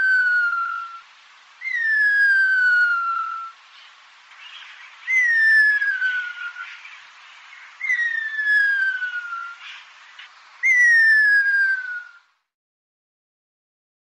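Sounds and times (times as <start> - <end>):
faint steady hiss: 0.0 - 12.6
bird whistles sliding down: 1.6 - 3.6, 5.0 - 6.9, 7.8 - 9.8, 10.6 - 12.3.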